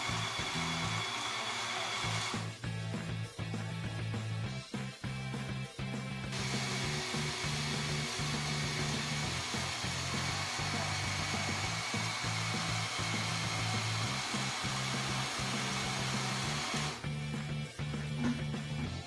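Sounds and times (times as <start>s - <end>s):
toy motors whirring: 0.0s - 2.4s, 6.4s - 17.0s
background music with bassline: 2.1s - 19.0s.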